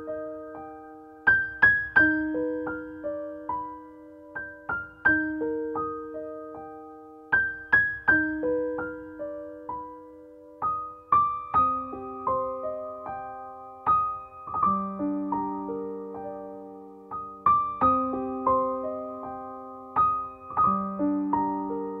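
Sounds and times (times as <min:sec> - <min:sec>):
soft piano melody: 0:00.0 - 0:22.0.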